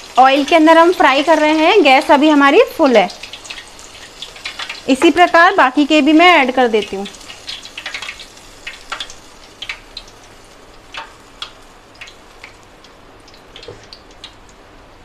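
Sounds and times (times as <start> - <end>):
oil crackling and popping: 0.0 - 14.6
deep-frying sizzle: 0.0 - 15.0.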